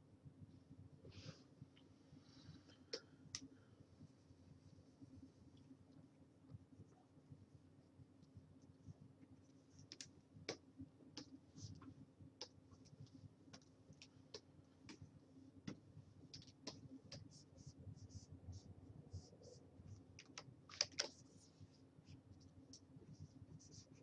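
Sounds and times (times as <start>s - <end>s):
low steady hum: 0.0s - 24.0s
computer keyboard clicking: 20.2s - 21.2s.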